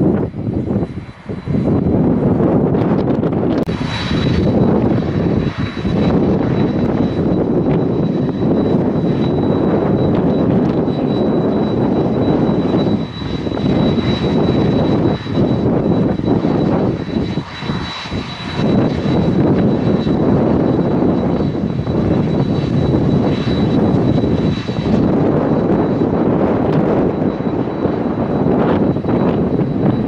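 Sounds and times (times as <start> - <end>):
jet engines idling: 0.0 - 30.0
wind buffeting microphone: 0.0 - 30.0.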